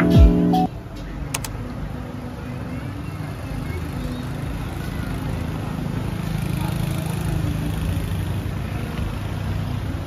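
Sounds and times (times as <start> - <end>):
street traffic noise: 0.0 - 10.0
motorbike engine running: 3.2 - 10.0.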